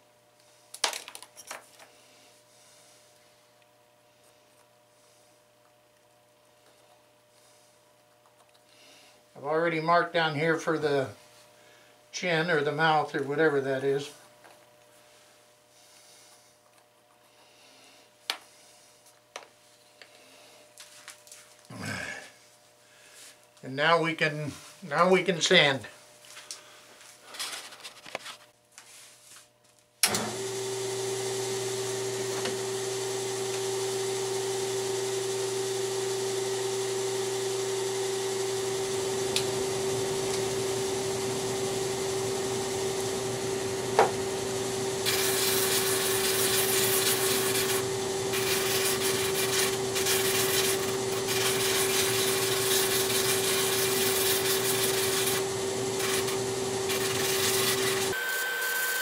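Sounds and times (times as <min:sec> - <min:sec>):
shop vacuum and sander whine: 0:30.0 - 0:59.0
wood rasping on sanding drum: 0:42.9 - 0:58.2.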